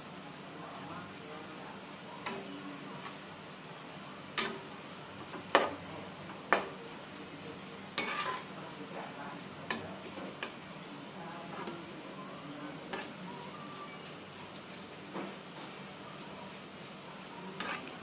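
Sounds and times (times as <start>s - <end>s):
oil sizzling: 0.0s - 18.0s.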